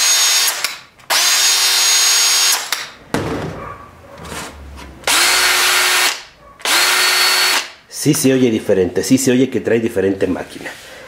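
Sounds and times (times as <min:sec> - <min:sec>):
cordless drill motor whirring: 0:00.0 - 0:02.8, 0:05.0 - 0:07.7
drill whining in short bursts: 0:00.0 - 0:02.8, 0:05.0 - 0:07.7.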